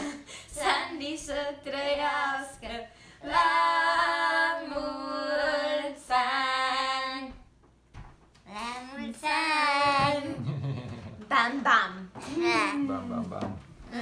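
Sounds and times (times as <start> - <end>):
girls singing unaccompanied: 0.0 - 7.5, 8.6 - 10.4.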